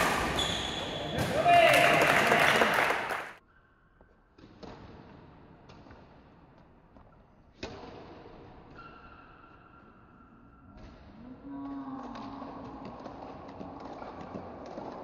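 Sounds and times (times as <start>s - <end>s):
spectators cheering: 1.2s - 3.4s.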